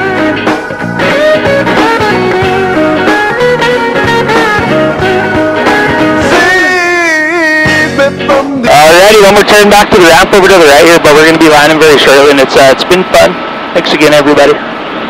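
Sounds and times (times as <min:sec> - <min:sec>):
blues-rock song: 0:00.0 - 0:08.7
lead guitar bending notes: 0:00.0 - 0:11.1.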